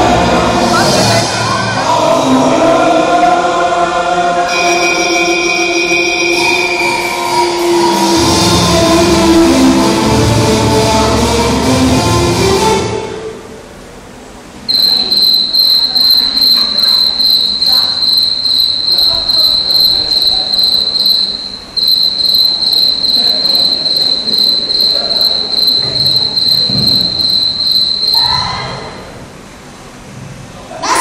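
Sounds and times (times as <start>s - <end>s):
music: 0.0s - 13.5s
cricket chirping: 14.7s - 28.9s.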